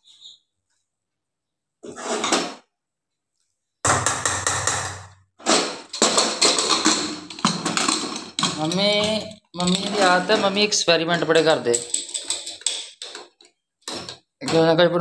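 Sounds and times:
metal spoon scraping and clanking: 0:05.5 - 0:14.7.

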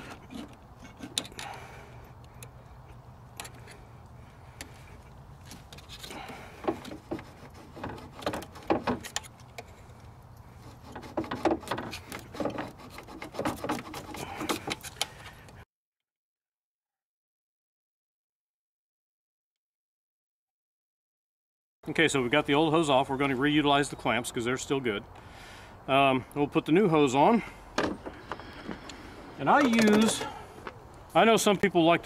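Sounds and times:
hand tools knocking and scraping: 0:05.7 - 0:09.8, 0:10.6 - 0:15.2, 0:27.7 - 0:30.8.

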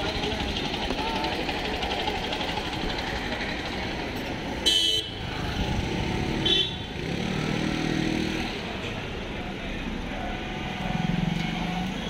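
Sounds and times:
street traffic: 0:00.0 - 0:12.0
vehicle horn honks: 0:04.6 - 0:05.2, 0:06.4 - 0:06.9.

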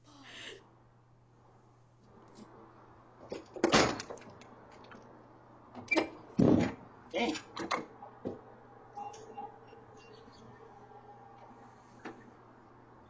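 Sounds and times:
door knocks and rattles: 0:03.2 - 0:04.4, 0:05.8 - 0:06.9.

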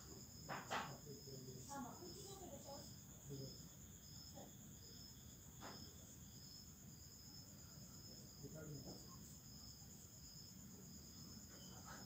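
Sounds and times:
insect chirring: 0:00.0 - 0:12.0
pulsing insect call: 0:06.1 - 0:12.0.

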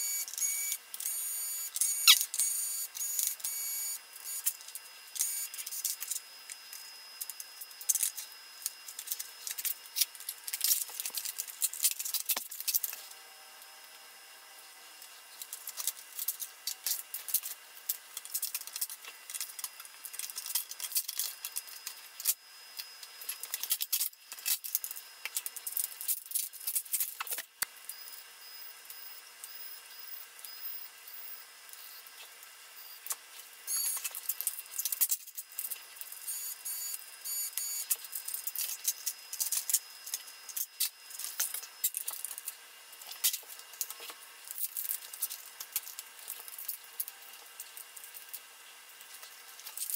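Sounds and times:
electric screwdriver whirring: 0:00.0 - 0:04.6.

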